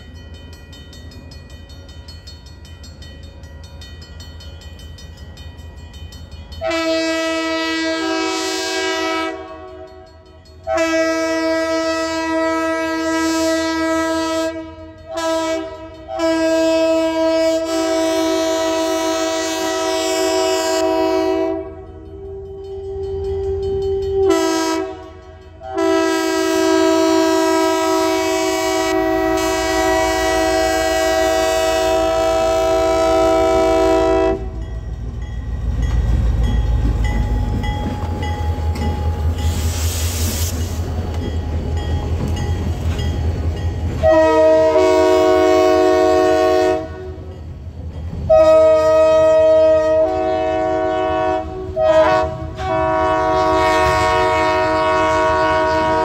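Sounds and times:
locomotive air horn blasts: 6.6 - 34.6, 44.0 - 47.3, 48.3 - 56.0.

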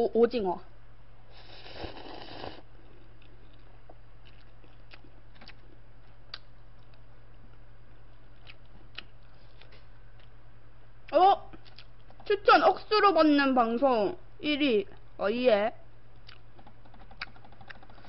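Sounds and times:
slurping noodles: 1.3 - 2.7
chewing: 1.4 - 10.4, 16.2 - 18.0.

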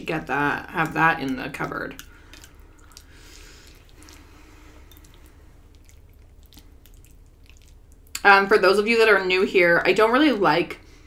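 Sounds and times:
quiet chewing: 0.7 - 8.2.

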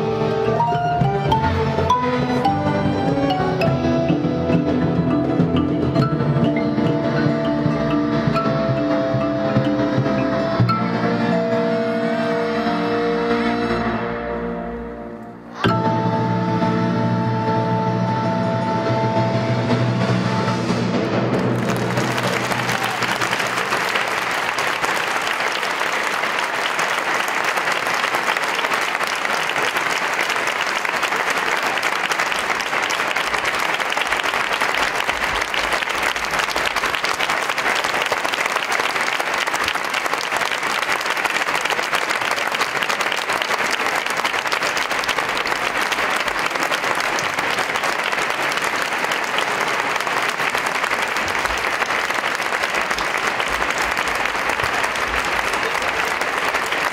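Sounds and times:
audience applauding: 21.1 - 56.9.

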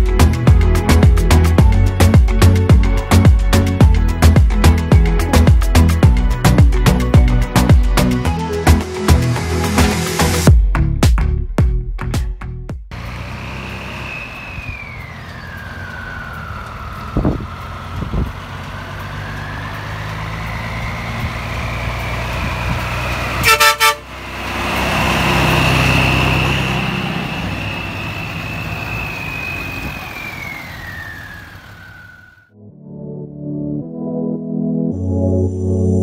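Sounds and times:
truck engine passing: 12.9 - 32.5
siren wailing: 13.7 - 22.0, 26.5 - 32.6
horn toot: 23.3 - 24.2.

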